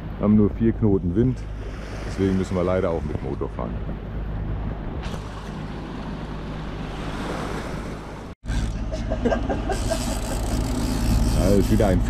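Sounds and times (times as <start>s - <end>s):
water rushing past hull: 0.0s - 8.4s
boat engine humming: 0.0s - 12.0s
wind: 0.0s - 12.0s.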